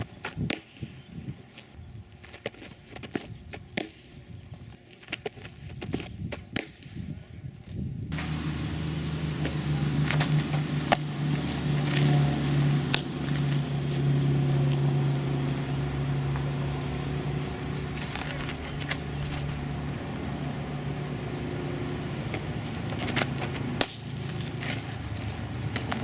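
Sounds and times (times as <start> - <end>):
low motor hum: 7.4 - 26.0.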